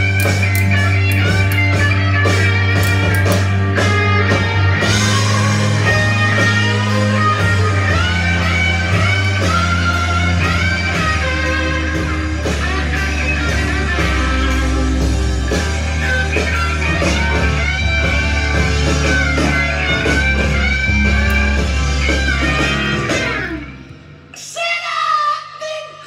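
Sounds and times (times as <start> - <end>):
guitar-led rock music: 0.0 - 24.8.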